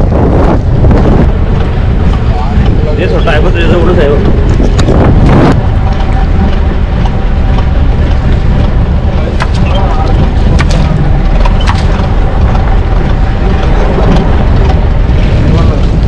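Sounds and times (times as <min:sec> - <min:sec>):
boat engine rumbling: 0:00.0 - 0:16.0
sharp clicks or knocks: 0:09.3 - 0:14.8.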